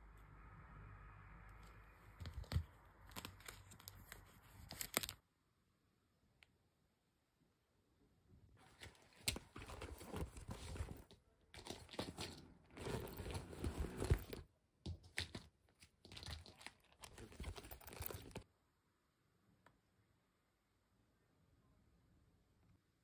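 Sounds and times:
rustling and knocking of items: 8.6 - 18.4.

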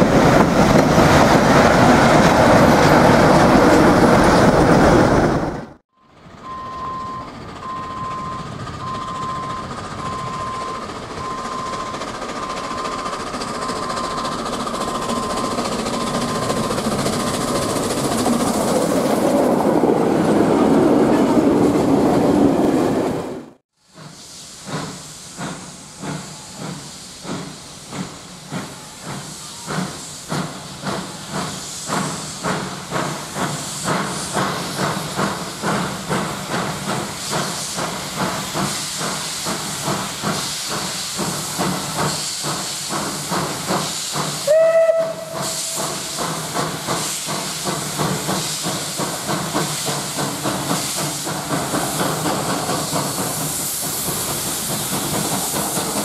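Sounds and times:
steam locomotive exhaust chuffs: 6.1 - 20.8, 23.5 - 56.0
steam hissing: 23.8 - 56.0
steam whistle blast: 44.4 - 46.2.

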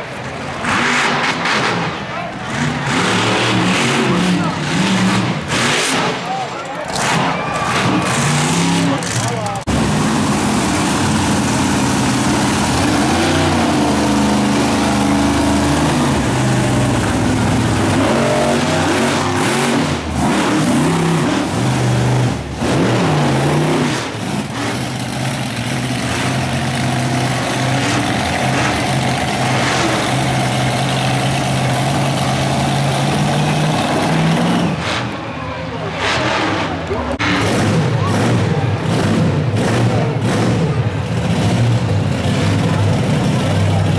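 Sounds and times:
truck engines revving: 0.0 - 43.9.

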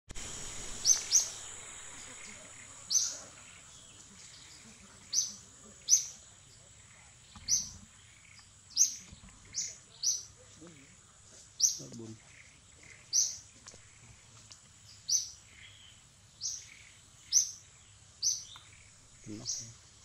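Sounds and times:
faint high-pitched hum: 0.2 - 11.0
bird chirping: 0.2 - 20.0.

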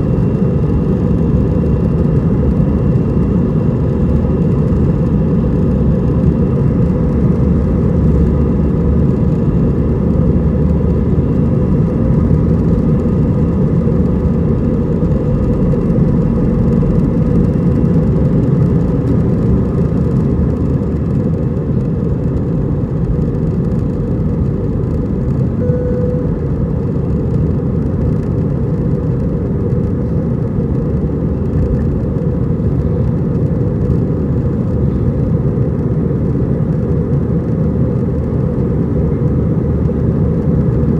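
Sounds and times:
jet engine rumble in cabin: 0.0 - 40.9
short beep: 25.6 - 26.5.

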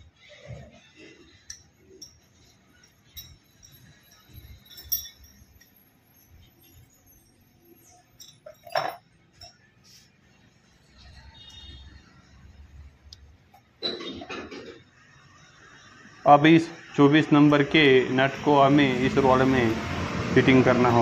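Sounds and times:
metal parts clinking: 1.4 - 7.0, 7.7 - 9.7.

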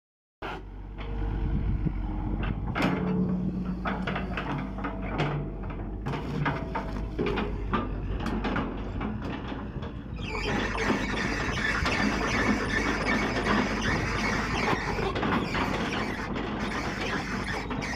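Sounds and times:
excavator diesel engine running: 0.5 - 17.9
short squealing tones: 10.1 - 17.9.

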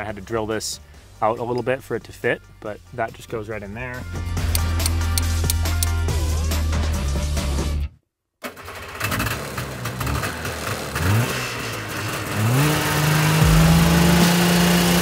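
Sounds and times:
snowcat engine revving: 9.0 - 15.0.

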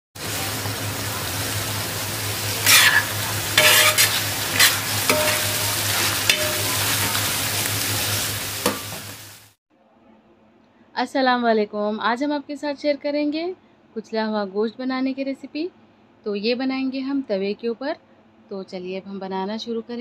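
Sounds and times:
meat sizzling in oil: 0.2 - 9.6
spatula scraping a pan: 2.6 - 7.4.

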